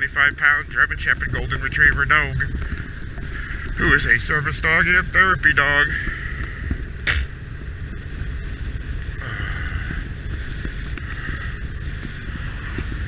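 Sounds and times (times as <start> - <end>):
motorcycle engine: 0.0 - 13.0
wind noise on microphone: 0.0 - 13.0.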